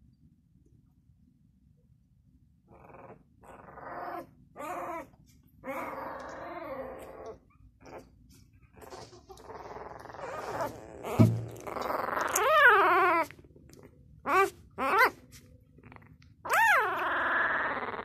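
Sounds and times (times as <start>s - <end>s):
puppies whimpering and squeaking: 2.8s - 18.0s
thump: 11.2s - 11.6s.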